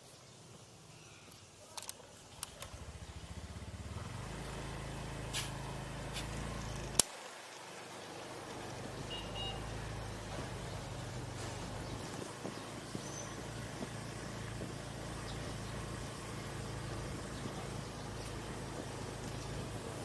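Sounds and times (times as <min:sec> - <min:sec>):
sharp clicks: 0:01.3 - 0:02.8
small motorcycle engine accelerating: 0:02.4 - 0:07.0, 0:08.0 - 0:20.0.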